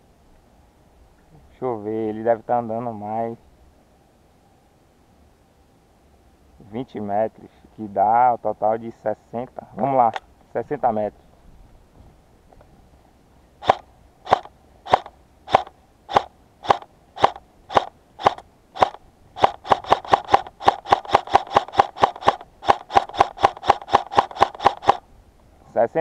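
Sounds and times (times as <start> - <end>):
airsoft gun shots snapping: 13.6 - 25.0.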